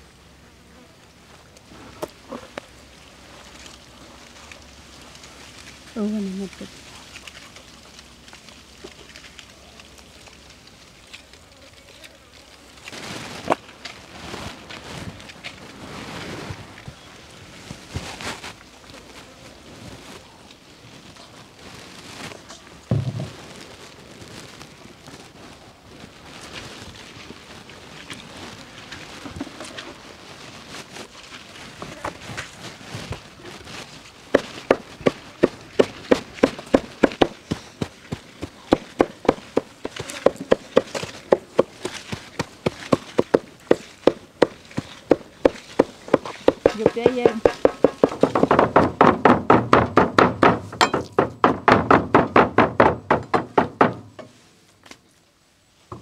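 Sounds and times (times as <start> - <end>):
cleaver chopping on wooden board: 43.3 - 54.0.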